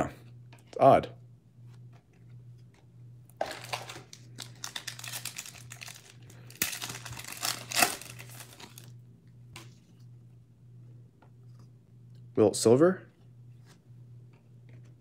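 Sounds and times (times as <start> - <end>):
foil wrapper crinkling and tearing: 3.4 - 8.9.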